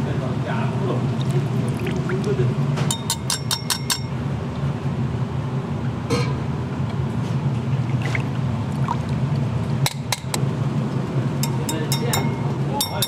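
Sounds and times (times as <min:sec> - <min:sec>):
steady low hum: 0:00.0 - 0:13.0
metal ladle clinking against bowl: 0:02.9 - 0:04.2, 0:11.4 - 0:13.0.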